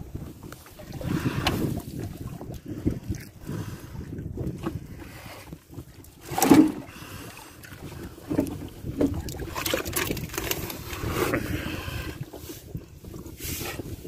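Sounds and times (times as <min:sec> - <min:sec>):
wind on microphone: 0:00.0 - 0:14.0
net and fish knocking on hull: 0:06.2 - 0:06.9, 0:08.2 - 0:10.8
loud thump in boat: 0:06.3 - 0:06.8.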